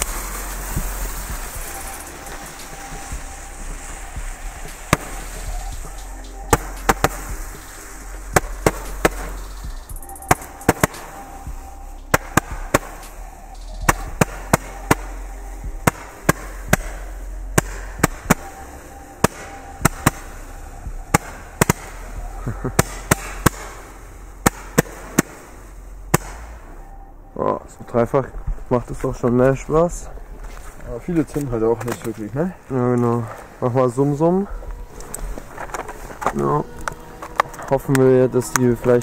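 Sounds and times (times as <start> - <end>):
fizzing hiss of burning fireworks: 0.0 - 26.8, 28.6 - 39.0
firecrackers cracking: 0.0 - 26.9, 33.0 - 39.0.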